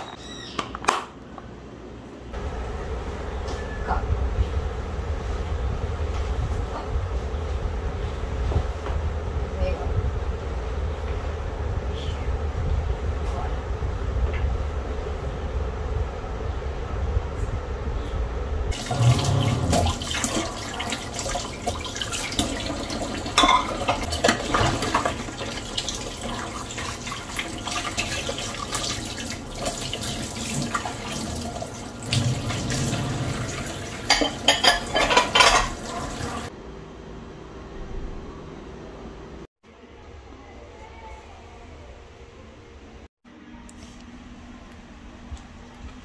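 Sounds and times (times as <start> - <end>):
crockery clinking: 23.4 - 24.6, 34.0 - 35.8.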